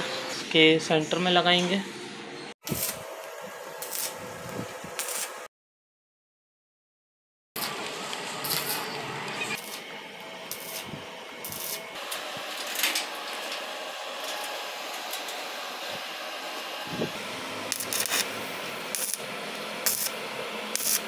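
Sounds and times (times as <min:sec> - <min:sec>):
welding arc crackling and hissing: 0:02.6 - 0:05.5, 0:07.6 - 0:21.0.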